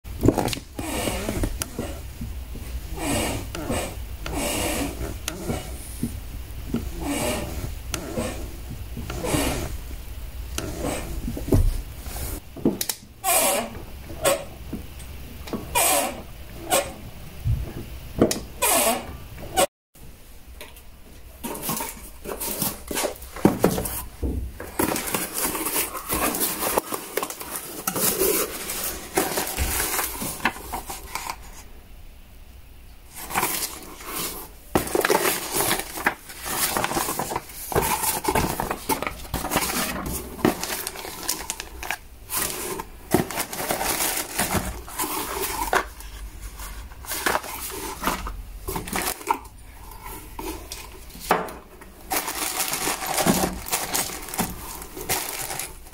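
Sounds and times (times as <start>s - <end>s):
cardboard flaps rustling: 21.4s - 31.6s, 33.1s - 55.9s
plastic bags crinkling: 21.4s - 31.6s, 33.1s - 55.9s.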